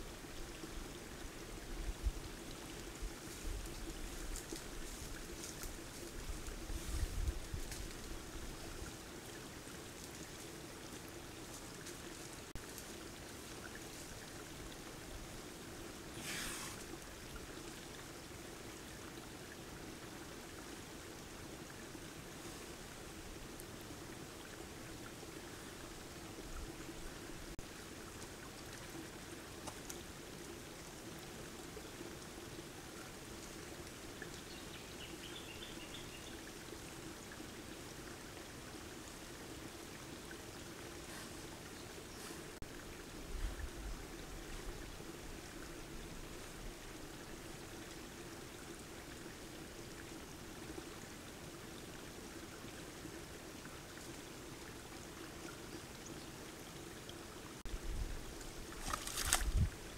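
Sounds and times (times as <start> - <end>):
steady hiss: 0.0 - 18.3
mud and water sloshing: 58.4 - 59.8
splash: 58.7 - 59.7.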